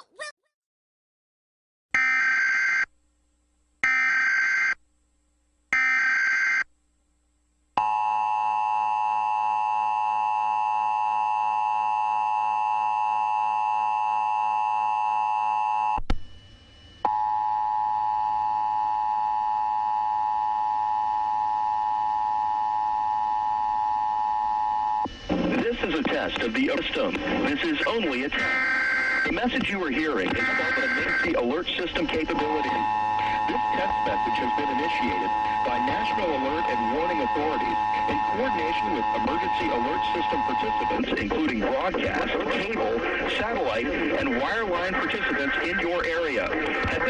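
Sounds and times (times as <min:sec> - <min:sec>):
raspy digital data bursts: 0:25.5 - 0:47.0
two-tone attention signal: 0:30.3 - 0:31.4.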